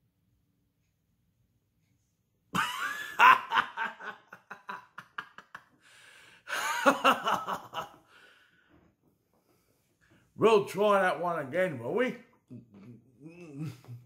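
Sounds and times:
man laughing: 2.6 - 5.8, 6.5 - 8.0, 12.5 - 14.0
gasping in-breath: 5.8 - 6.5, 8.1 - 8.9.

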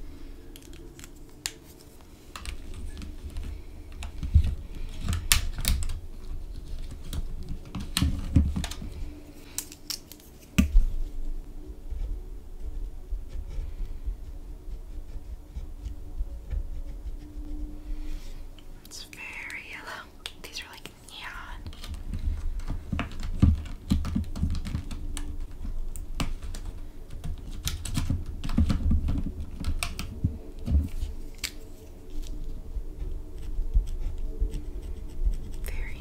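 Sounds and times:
pen scratching on paper: 14.8 - 17.4.

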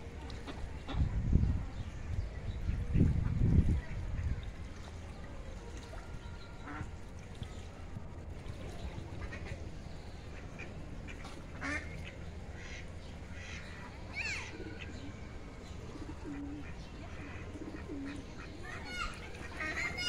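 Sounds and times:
low background noise: 0.0 - 20.0
ducks quacking: 9.0 - 13.8, 16.1 - 20.0.

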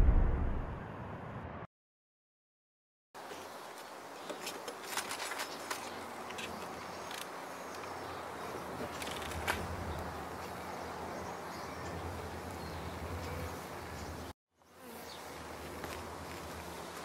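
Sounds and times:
bees buzzing: 9.6 - 17.0.

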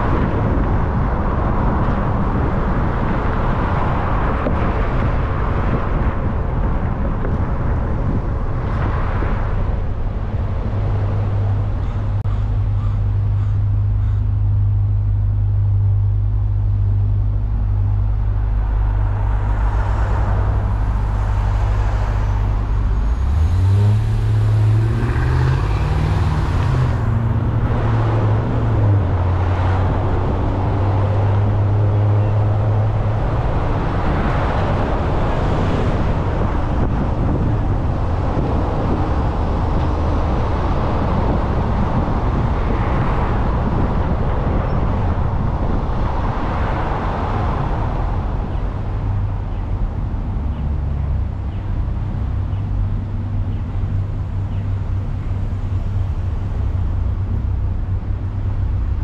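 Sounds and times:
road noise: 0.0 - 59.0
car engine accelerating: 10.4 - 43.9.

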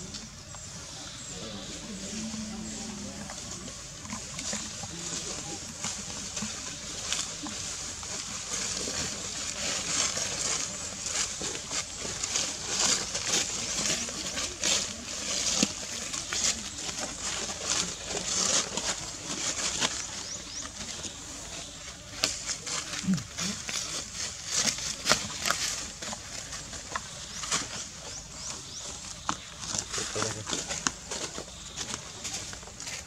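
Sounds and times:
dry leaves rustling: 0.0 - 33.0.

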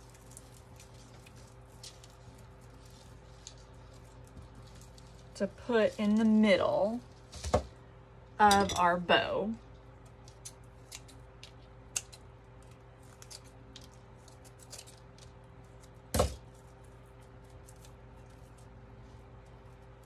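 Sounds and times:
raffia rustling and crackling: 0.0 - 7.8
steady low hum: 0.0 - 20.0.

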